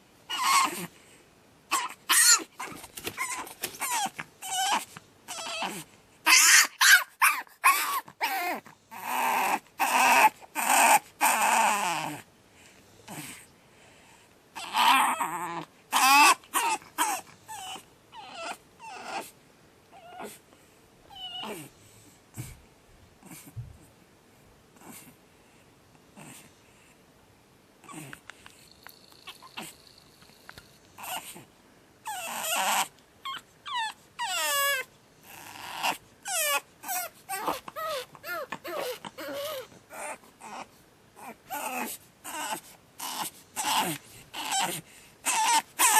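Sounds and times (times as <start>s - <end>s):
puppy crying and whining: 0.3s - 0.9s, 1.7s - 12.2s, 14.6s - 20.4s, 21.1s - 21.7s, 27.8s - 28.2s, 29.0s - 30.4s, 31.0s - 45.9s
puppy screaming: 0.3s - 0.9s, 1.7s - 12.2s, 14.6s - 19.3s, 32.0s - 45.9s.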